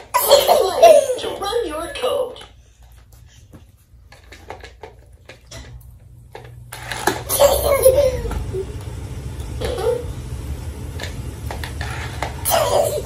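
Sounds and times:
child laughing: 0:00.1 - 0:01.6, 0:07.3 - 0:08.7, 0:09.6 - 0:10.1, 0:12.4 - 0:13.0.

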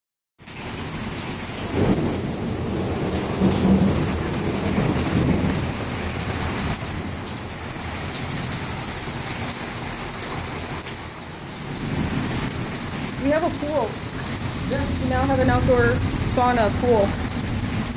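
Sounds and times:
heavy rain splashing into water: 0:00.4 - 0:17.9
thunder rumbling: 0:01.6 - 0:08.5, 0:11.6 - 0:17.9.

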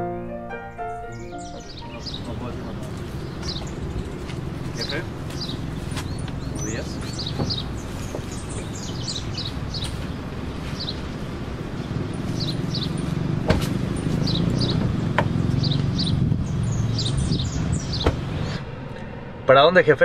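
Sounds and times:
songbirds chirping: 0:00.0 - 0:20.0
steady low rumble: 0:01.6 - 0:12.2, 0:16.1 - 0:20.0.

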